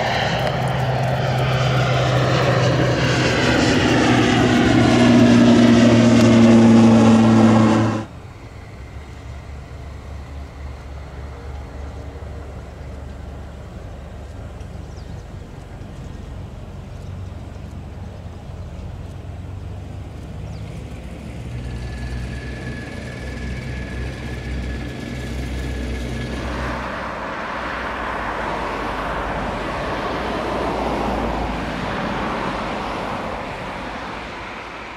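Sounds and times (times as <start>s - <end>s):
broad rushing noise: 0.0s - 12.6s, 19.5s - 34.9s
thin steady whine: 0.0s - 14.6s, 20.7s - 28.9s
tow tractor engine rumbling: 0.0s - 34.9s.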